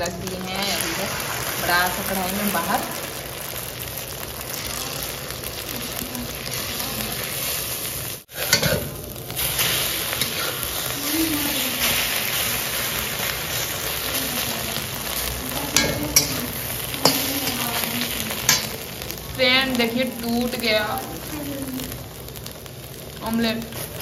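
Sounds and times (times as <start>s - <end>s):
eggs sizzling in a pan: 0.0s - 24.0s
spatula scraping a pan: 4.4s - 19.0s.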